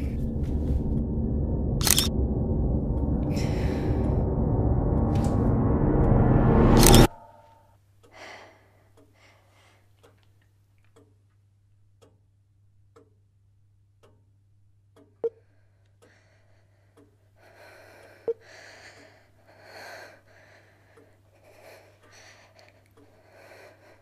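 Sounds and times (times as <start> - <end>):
low steady hum: 0.0 - 7.6
sharp clicks: 1.8 - 2.2
clock ticking: 11.9 - 13.3, 13.9 - 16.2.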